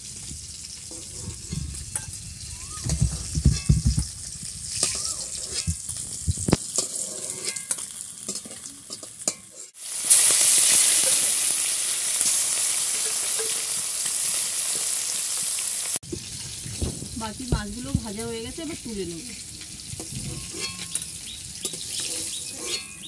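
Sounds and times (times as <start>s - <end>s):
hot oil sizzling: 0.0s - 23.0s
metal spatula scraping in pan: 0.9s - 4.1s, 4.7s - 11.5s, 12.2s - 15.0s, 18.1s - 23.0s.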